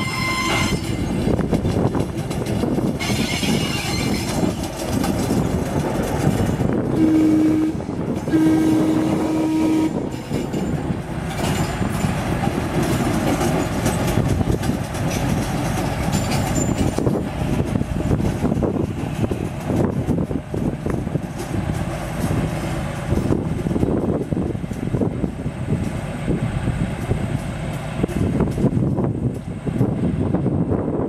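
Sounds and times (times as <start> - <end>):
locomotive horn blasts: 0.0 - 0.8, 6.9 - 10.1
diesel locomotive running: 0.0 - 31.0.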